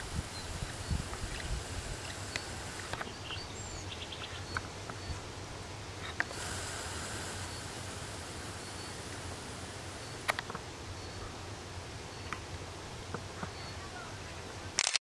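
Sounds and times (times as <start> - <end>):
wind on microphone: 0.0 - 3.6
faint high chirps: 0.0 - 5.2, 6.1 - 11.4, 13.4 - 14.1.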